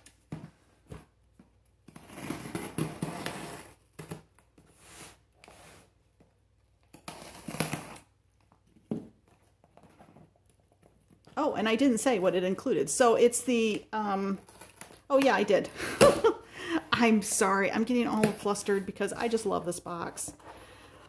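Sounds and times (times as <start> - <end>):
scissors scraping through packing tape: 7.0 - 8.1.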